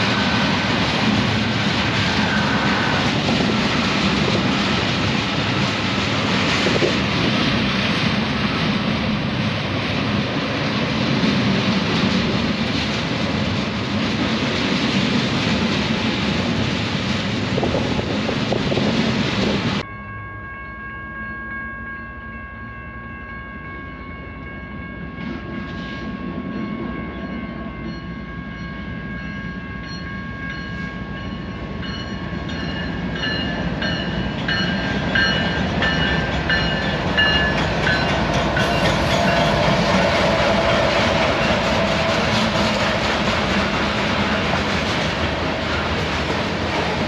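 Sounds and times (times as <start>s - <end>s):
diesel locomotives passing: 0.0s - 47.0s
train rumbling: 0.0s - 47.0s
crossing bell ringing: 19.8s - 43.1s.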